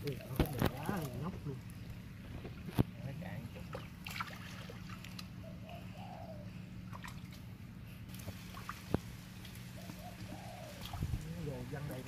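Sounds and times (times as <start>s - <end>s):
water splashing and dripping: 3.6s - 5.4s, 8.1s - 9.8s, 10.8s - 11.4s
faint bird call: 5.4s - 6.7s.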